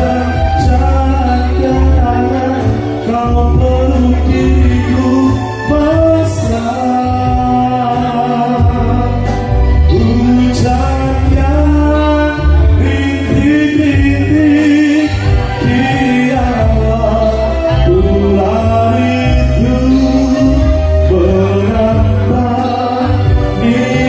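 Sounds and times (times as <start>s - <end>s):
guitar: 0.0s - 24.0s
heavy bass: 0.0s - 24.0s
keyboard: 0.0s - 24.0s
man singing into microphone: 0.0s - 24.0s.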